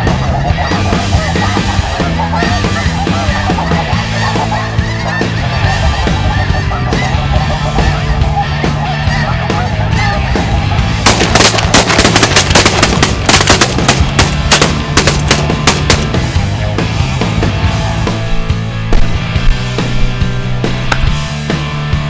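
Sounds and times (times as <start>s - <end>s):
flock of geese calling: 0.0s - 16.2s
rock music with bass line: 0.0s - 22.0s
rapid shotgun fire: 11.0s - 16.3s.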